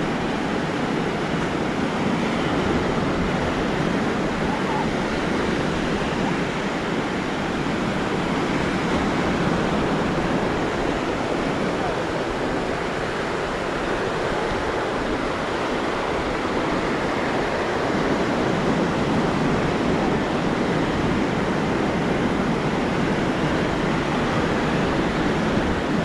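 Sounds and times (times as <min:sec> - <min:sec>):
waves washing onto beach: 0:00.0 - 0:26.0.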